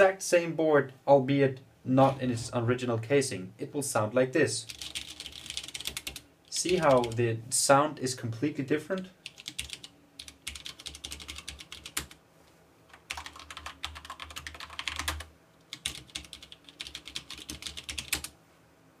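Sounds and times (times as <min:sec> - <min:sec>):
mechanical keyboard typing: 0:04.7 - 0:07.2, 0:09.0 - 0:12.2, 0:12.9 - 0:18.3.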